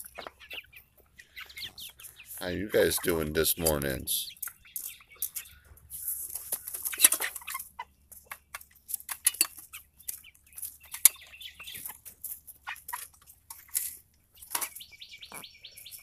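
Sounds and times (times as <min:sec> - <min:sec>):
chickens clucking: 0:00.0 - 0:16.0
clicks and rustles: 0:04.4 - 0:16.0.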